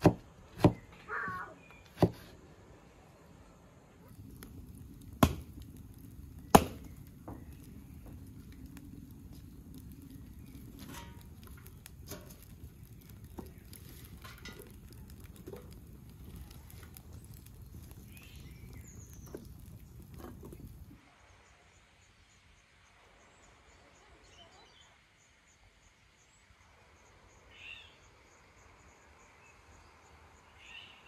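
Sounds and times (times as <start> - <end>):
wood fire rumbling and crackling: 0.0 - 21.0.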